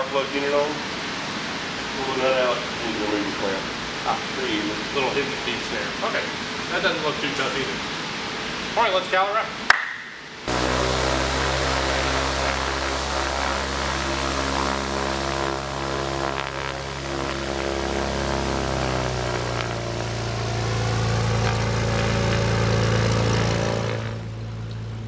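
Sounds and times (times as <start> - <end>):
light aircraft engine and propeller: 10.5 - 25.0.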